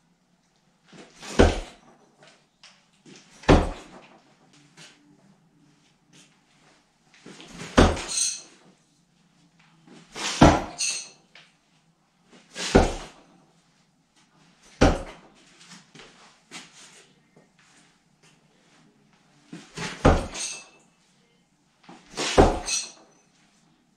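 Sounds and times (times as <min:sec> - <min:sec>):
knives thudding into wood: 0:01.2 - 0:01.8, 0:10.2 - 0:11.0, 0:19.8 - 0:20.6, 0:22.2 - 0:22.9.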